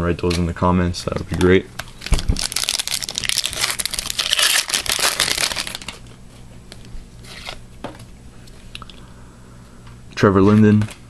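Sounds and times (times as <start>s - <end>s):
wrapper tearing and crinkling: 1.8s - 6.1s.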